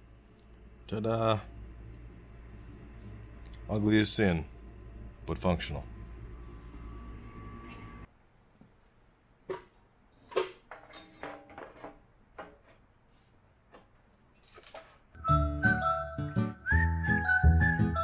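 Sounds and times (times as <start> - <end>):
music: 15.2 - 18.0.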